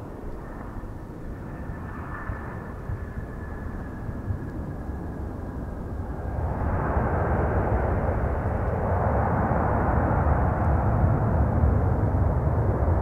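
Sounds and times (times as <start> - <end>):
jet engine whine: 0.0 - 13.0
jet engine rushing roar: 6.0 - 13.0.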